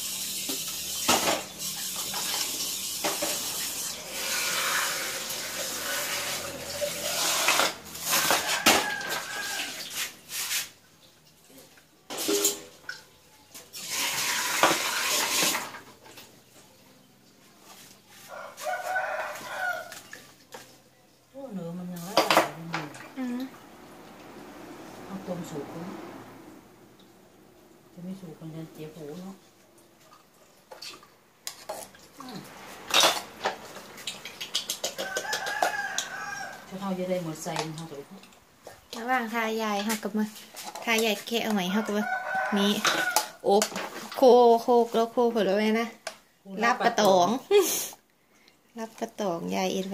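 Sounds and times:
rooster crowing: 8.0s - 9.9s, 18.2s - 20.1s, 34.8s - 36.8s, 41.7s - 43.4s
snail shells knocking in metal bowl: 32.8s - 36.2s.

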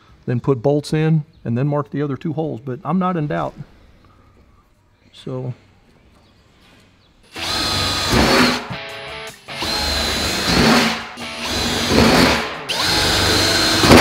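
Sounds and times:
cordless drill whining: 7.3s - 14.0s.

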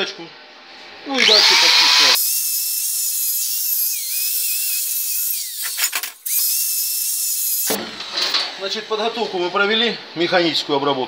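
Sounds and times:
electric drill wire brush whining: 1.2s - 7.8s.

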